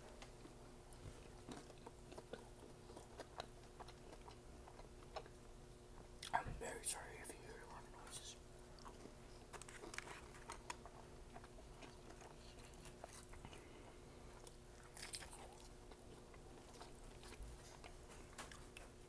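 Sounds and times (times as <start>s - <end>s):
crunching bite: 14.4s - 16.0s.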